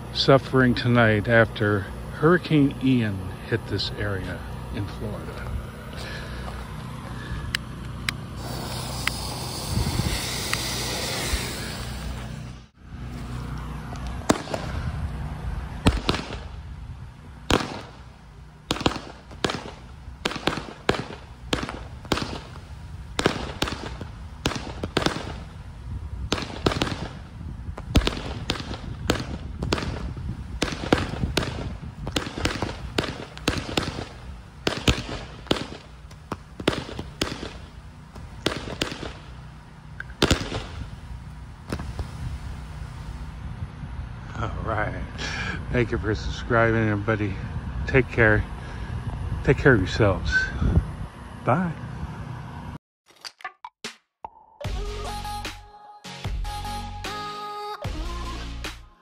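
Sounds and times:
fireworks popping: 0:08.4 - 0:12.5, 0:14.2 - 0:14.8, 0:15.8 - 0:16.6, 0:17.5 - 0:18.1, 0:18.7 - 0:25.6, 0:26.2 - 0:43.0.

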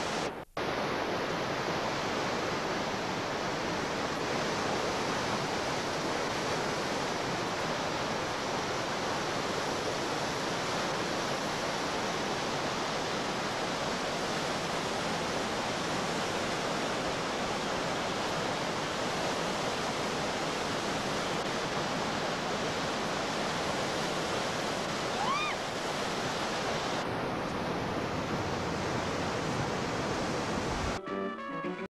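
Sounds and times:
whitewater rapids rushing: 0:00.0 - 0:31.0
rising whistle: 0:25.1 - 0:25.6.

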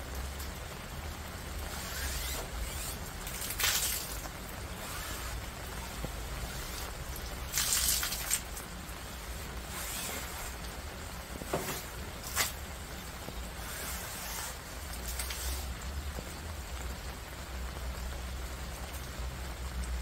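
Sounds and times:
heavy rain falling: 0:00.0 - 0:20.0
hissing bursts: 0:01.6 - 0:08.4.

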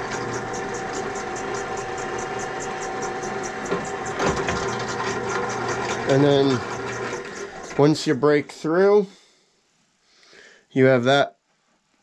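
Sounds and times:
drill press humming: 0:00.0 - 0:08.2.

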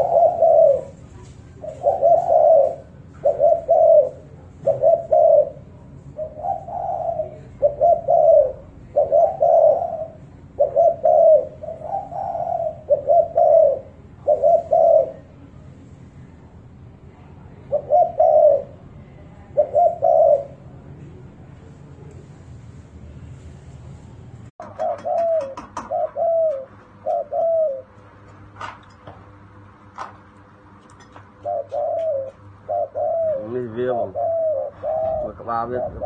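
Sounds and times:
dove cooing: 0:00.0 - 0:15.7, 0:17.2 - 0:21.1, 0:24.6 - 0:28.5, 0:31.0 - 0:36.0.

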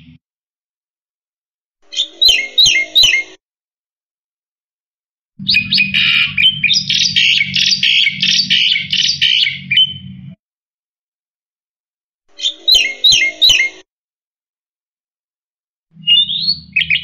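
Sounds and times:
starling singing: 0:05.4 - 0:10.1, 0:12.3 - 0:13.8, 0:16.0 - 0:17.0.

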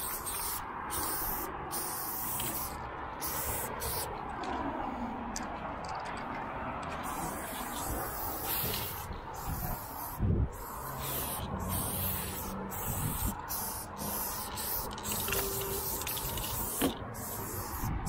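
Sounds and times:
spray paint can hissing: 0:00.0 - 0:04.2, 0:06.9 - 0:18.0.

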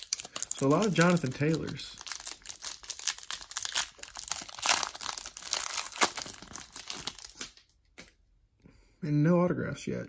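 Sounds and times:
plastic wrapper crinkling and tearing: 0:00.0 - 0:08.0.

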